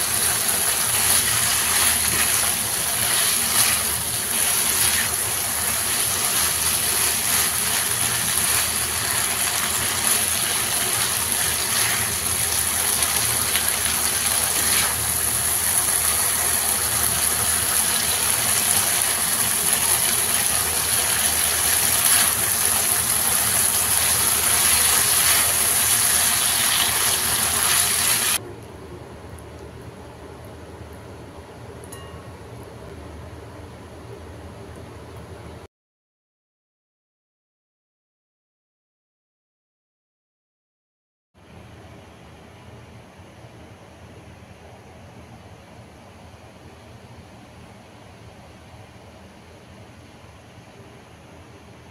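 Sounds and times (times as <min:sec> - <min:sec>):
spatula stirring in a pan: 0:00.0 - 0:16.5, 0:17.3 - 0:28.4
meat sizzling in a frying pan: 0:00.0 - 0:28.4.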